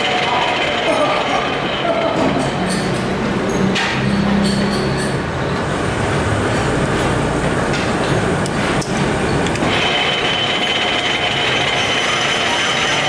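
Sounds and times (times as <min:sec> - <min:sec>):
high whine of lathe: 0:00.0 - 0:02.2, 0:09.6 - 0:13.0
lathe and workshop machinery running: 0:00.0 - 0:03.6, 0:04.5 - 0:13.0.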